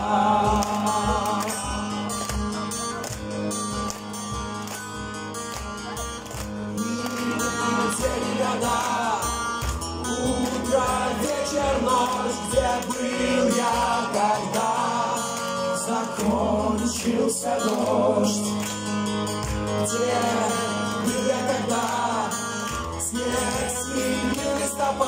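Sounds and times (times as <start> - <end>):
man singing: 0.0 - 2.0, 6.8 - 18.6, 19.8 - 25.0
acoustic guitar strumming: 0.0 - 25.0.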